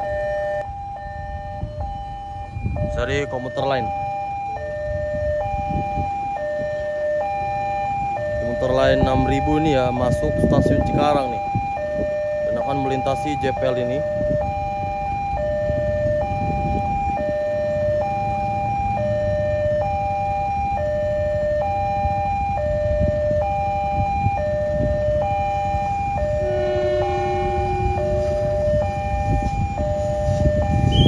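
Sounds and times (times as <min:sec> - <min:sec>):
level crossing warning siren: 0:00.0 - 0:31.0
electric train rumbling past: 0:23.9 - 0:31.0
train horn: 0:26.3 - 0:31.0.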